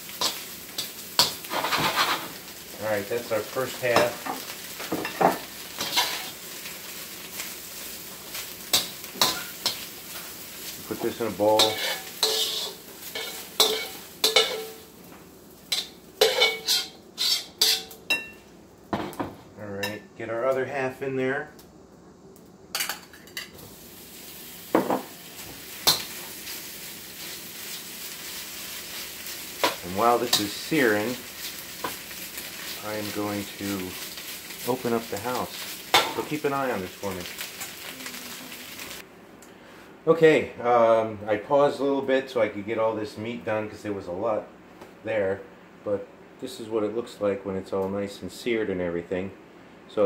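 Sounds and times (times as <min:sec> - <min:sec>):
meat sizzling in a wok: 0:00.0 - 0:18.3, 0:23.6 - 0:39.1
spatula scraping against wok: 0:00.2 - 0:02.4, 0:05.8 - 0:06.4, 0:11.4 - 0:14.8, 0:15.7 - 0:18.3.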